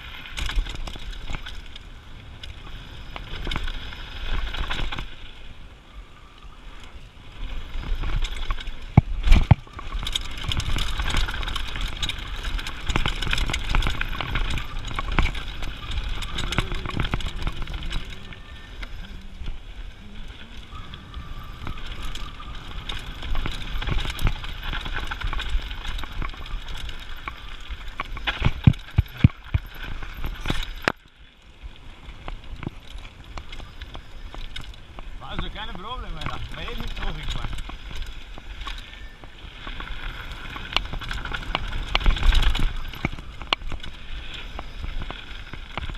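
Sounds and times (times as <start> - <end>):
bike rattling and clattering: 0.0 - 45.9
bike tyres rolling on gravel: 0.0 - 45.9
wind rumble: 0.0 - 45.9.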